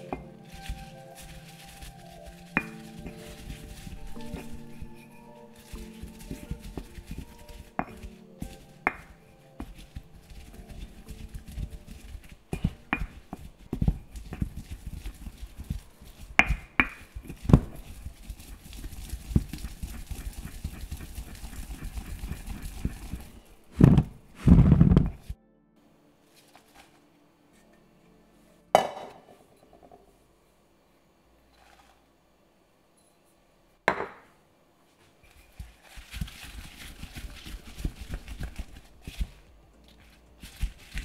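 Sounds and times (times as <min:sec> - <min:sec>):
pestle pounding in mortar: 0:00.1 - 0:24.0.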